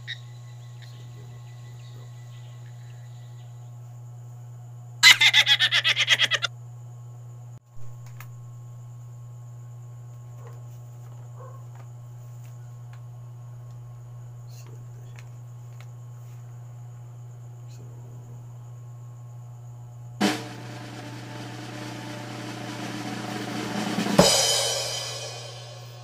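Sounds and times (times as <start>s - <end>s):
steady low hum: 0.0s - 5.0s, 6.5s - 26.0s
cymbal crash ringing: 20.2s - 26.0s
snare drum roll: 20.2s - 26.0s
sudden drum hit: 20.2s - 26.0s.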